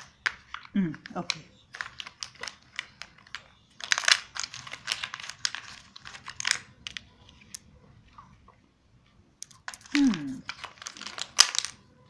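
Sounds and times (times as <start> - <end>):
plastic blocks clicking and clattering: 0.0 - 7.7, 9.4 - 11.9.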